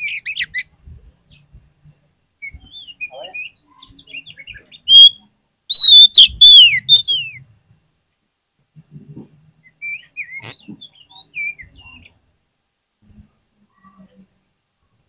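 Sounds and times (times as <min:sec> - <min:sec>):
bird twittering and whistling: 0:00.0 - 0:00.7, 0:02.4 - 0:07.4, 0:09.7 - 0:12.1.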